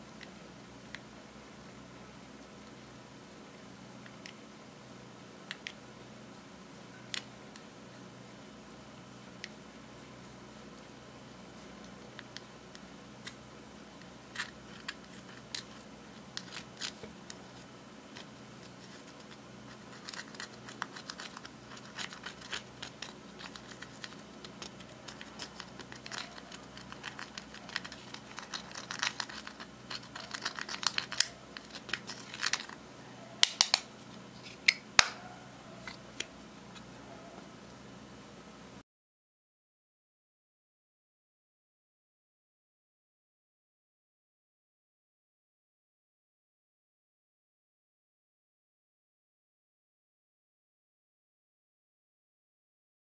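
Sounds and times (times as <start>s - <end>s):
spatula scraping eyeshadow: 18.7s - 32.8s.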